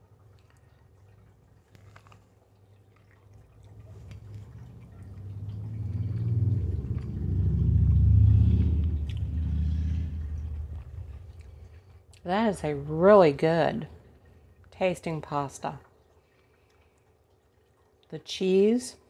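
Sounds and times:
person chewing spaghetti: 0:00.2 - 0:07.7
low rumble: 0:03.8 - 0:13.2.

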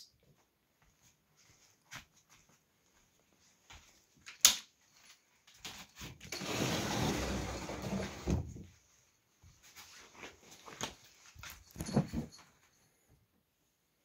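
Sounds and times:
wooden sliding door rumbling: 0:06.4 - 0:08.5.

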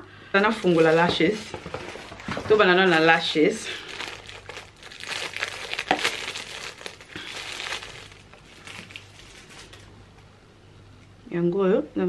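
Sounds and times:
plastic wrapping crinkling: 0:00.5 - 0:10.0.

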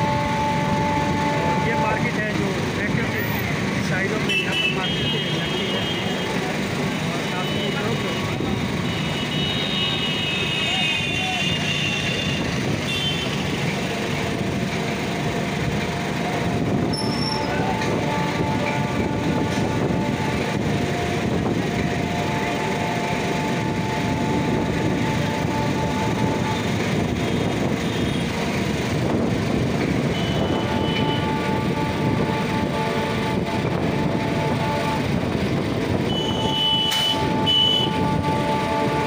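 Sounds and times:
train wheels rumbling on track: 0:00.0 - 0:39.0
faint train whine: 0:13.3 - 0:39.0.

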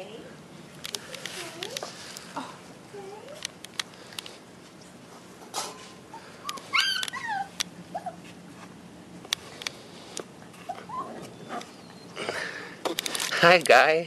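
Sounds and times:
puppy whimpering cries: 0:06.1 - 0:08.3, 0:10.6 - 0:12.2.

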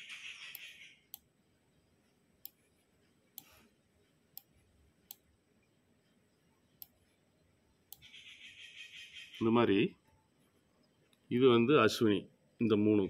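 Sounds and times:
computer mouse clicking: 0:03.4 - 0:03.6, 0:07.9 - 0:08.1.

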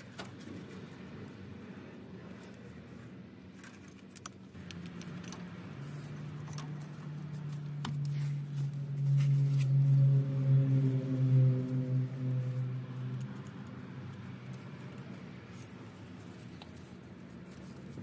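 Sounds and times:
low droning hum: 0:04.4 - 0:18.0.

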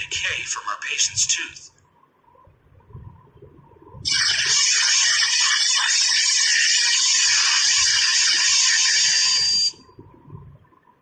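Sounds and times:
dental drill hissing: 0:04.1 - 0:09.8.

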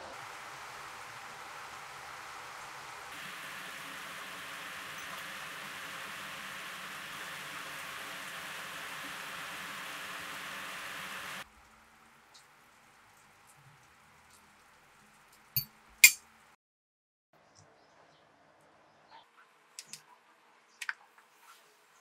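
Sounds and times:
steady hiss: 0:00.0 - 0:12.5.

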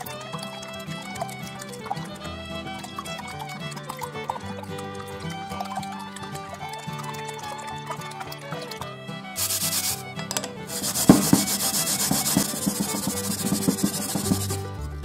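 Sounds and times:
sharp knock: 0:09.4 - 0:14.7
yam grating rasping strokes: 0:09.4 - 0:14.9.

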